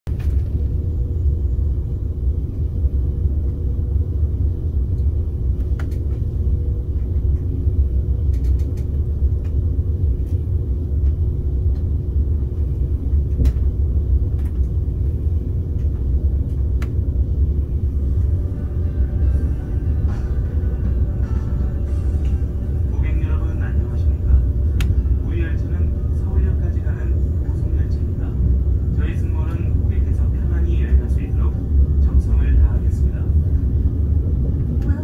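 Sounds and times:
train rumbling inside cabin: 0:00.0 - 0:35.0
light clicks: 0:08.2 - 0:09.6.

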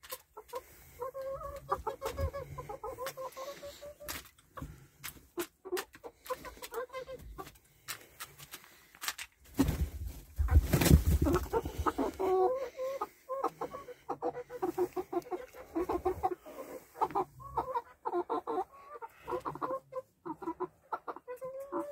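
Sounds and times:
hen clucking: 0:00.0 - 0:07.7, 0:10.4 - 0:21.9.

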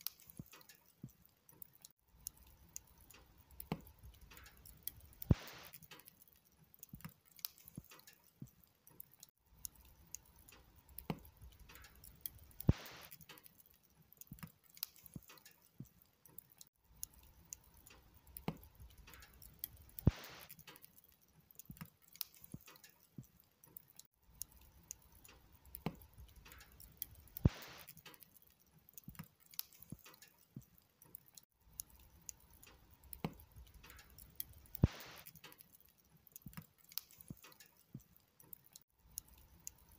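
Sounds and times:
log fire crackling: 0:00.0 - 0:39.9
sharp pop from burning wood: 0:20.0 - 0:20.7.

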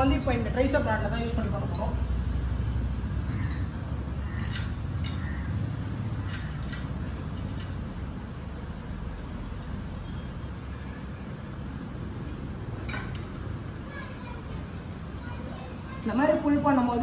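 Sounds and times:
steady low hum: 0:00.0 - 0:17.0
metal parts clinking: 0:04.4 - 0:05.4, 0:06.2 - 0:08.0.

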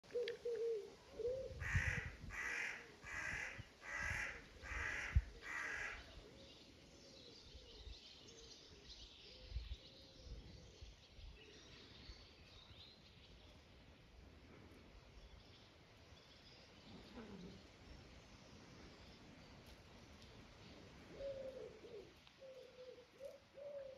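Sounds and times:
crow cawing: 0:01.6 - 0:06.0.

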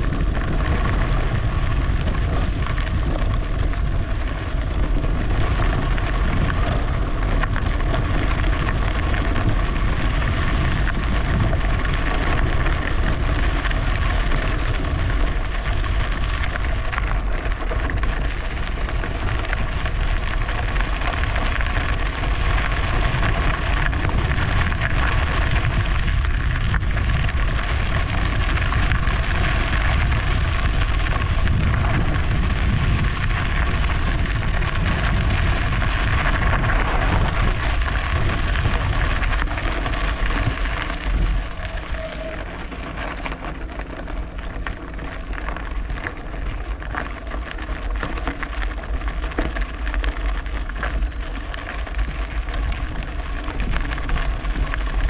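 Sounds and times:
faint steady hums: 0:00.0 - 0:55.0
tyres rolling on trail: 0:00.0 - 0:55.0
wind rushing over microphone: 0:00.0 - 0:55.0.

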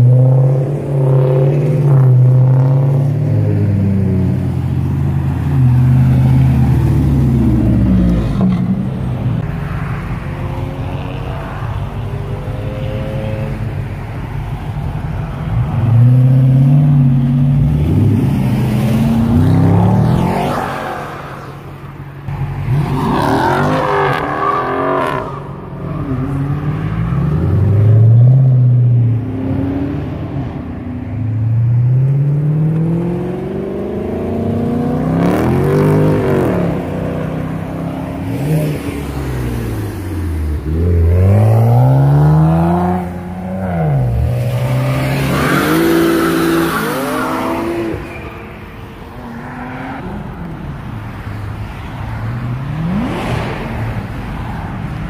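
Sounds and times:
cars accelerating past: 0:15.4 - 0:55.0.

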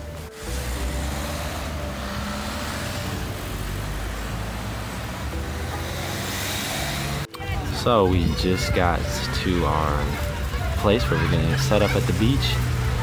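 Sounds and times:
cars driving past: 0:00.0 - 0:13.0.

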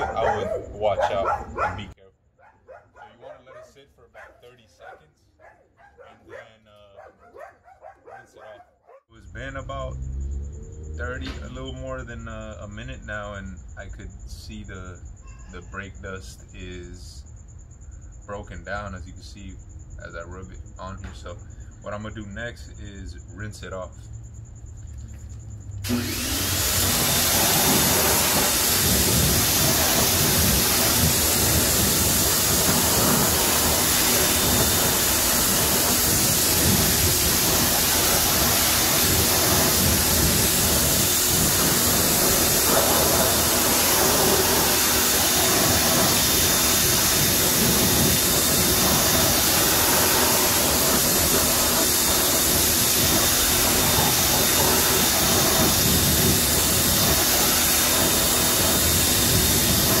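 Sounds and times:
pressure washer spraying: 0:00.0 - 0:00.4, 0:25.8 - 1:00.0.

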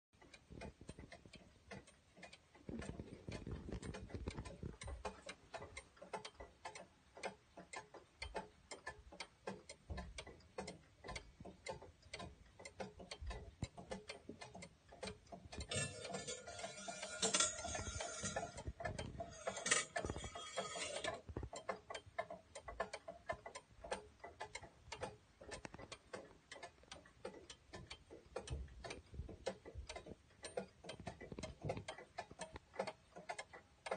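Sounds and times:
clock ticking: 0:00.2 - 0:33.9.

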